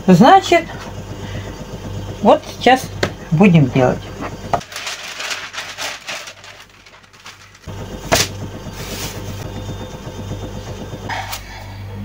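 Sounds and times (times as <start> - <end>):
steady low hum: 0.0 - 12.0
baking paper rustling: 4.6 - 9.4.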